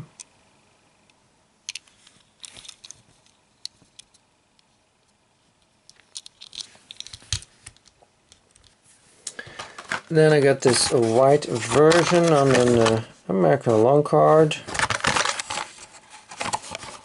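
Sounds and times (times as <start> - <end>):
toy car clicks and rustles: 1.7 - 4.2, 5.9 - 8.7.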